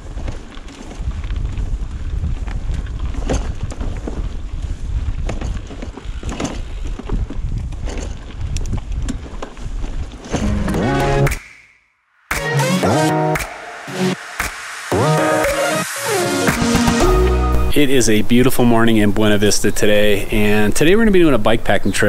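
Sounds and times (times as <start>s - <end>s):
wind buffeting microphone: 0.0s - 10.5s
bike rattling over bumps: 0.0s - 10.7s.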